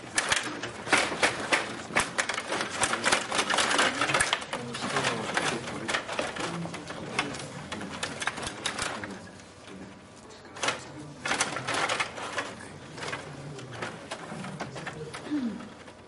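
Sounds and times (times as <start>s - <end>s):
table hockey game clattering: 0.0s - 9.2s.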